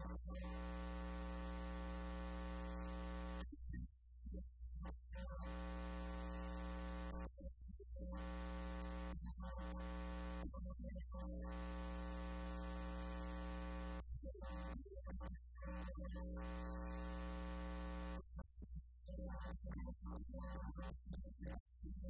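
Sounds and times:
steady electrical buzz: 0.0 - 3.4, 5.3 - 7.2, 8.2 - 10.5, 11.4 - 14.6, 15.8 - 18.2
low mains hum: 0.0 - 3.7, 5.2 - 7.2.

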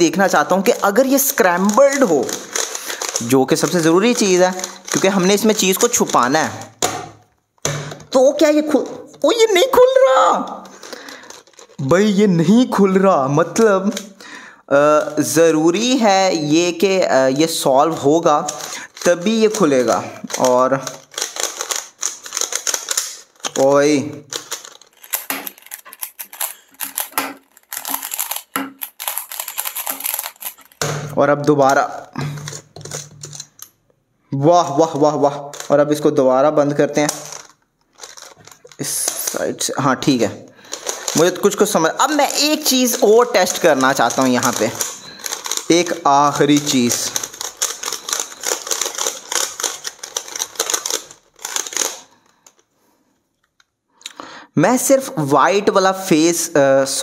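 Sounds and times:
puzzle cube clicking: 0.4 - 7.0, 18.4 - 31.0, 31.7 - 33.8, 40.7 - 52.6.

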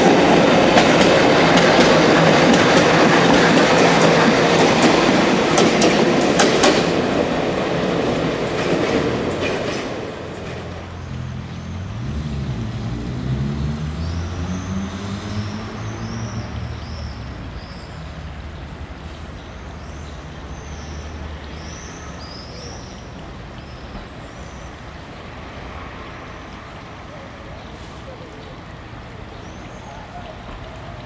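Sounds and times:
small birds chirping: 26.4 - 31.0.

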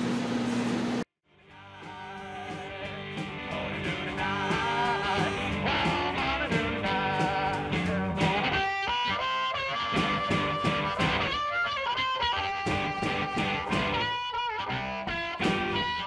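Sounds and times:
guitar instrumental music: 1.6 - 16.0.

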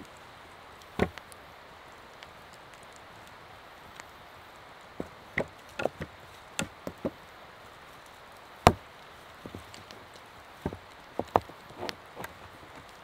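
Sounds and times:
wooden knocks and clicks: 5.0 - 7.2, 10.6 - 12.4.

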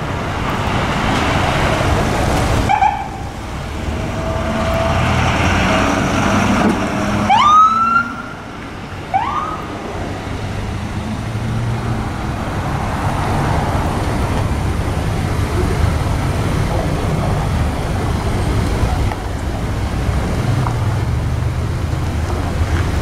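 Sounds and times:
surrounding traffic: 0.0 - 23.0
truck engine rumble: 0.0 - 23.0
siren whooping: 7.2 - 8.3.

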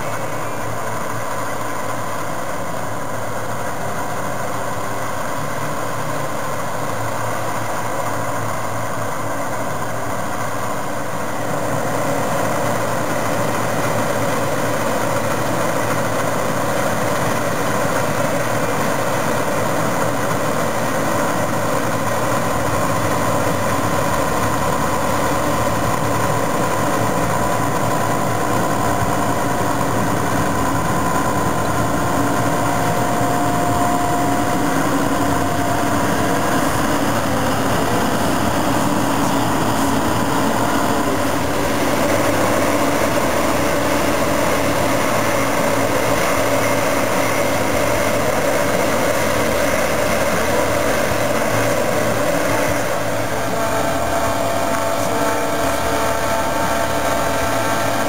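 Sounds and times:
farm machine engines droning: 0.0 - 58.0.

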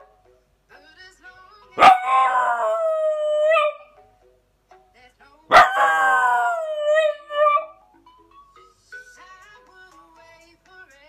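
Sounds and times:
faint music: 0.0 - 11.0
dog howling: 1.8 - 3.9, 5.5 - 7.8.

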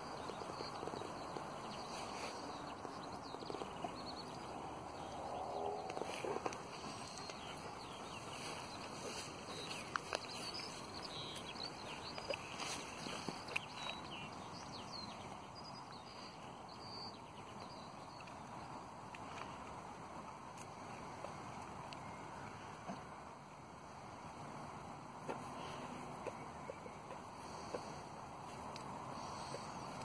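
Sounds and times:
dog tearing and chewing grass: 8.3 - 14.1.

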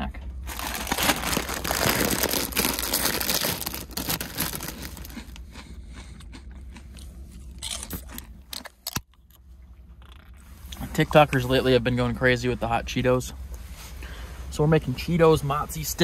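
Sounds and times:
foil chip bag crinkling: 0.4 - 5.4
chips crunching: 0.5 - 9.0.

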